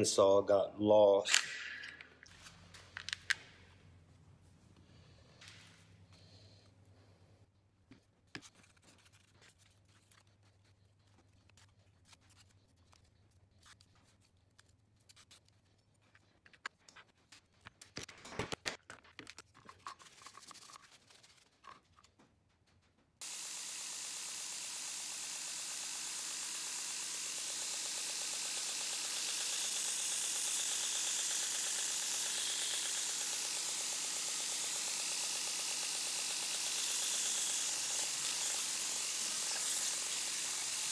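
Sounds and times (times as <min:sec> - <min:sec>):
belt grinder hissing: 0:23.2 - 0:40.9.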